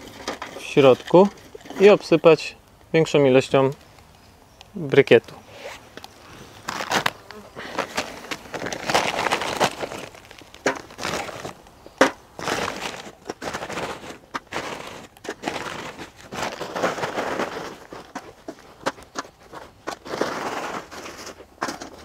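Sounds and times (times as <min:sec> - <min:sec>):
paper sack crinkling: 0:05.1 - 0:22.0.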